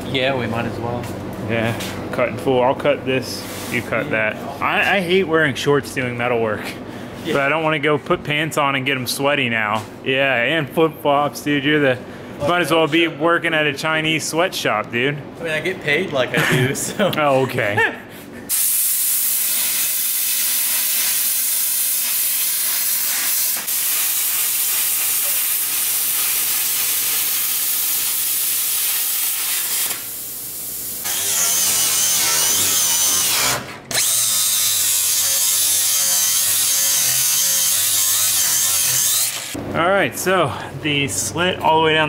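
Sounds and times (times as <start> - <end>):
angle grinder cutting steel: 18.5 - 30.1, 31.0 - 39.6.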